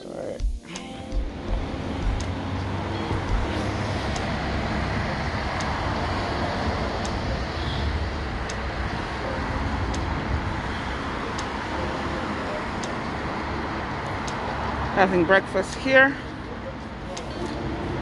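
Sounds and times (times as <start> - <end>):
road traffic rumble: 0.8 - 18.0
garbage truck driving: 1.3 - 15.1.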